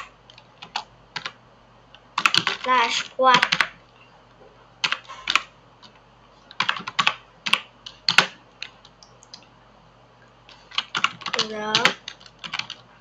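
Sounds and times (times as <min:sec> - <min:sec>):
keyboard typing clicks: 0:10.6 - 0:12.8.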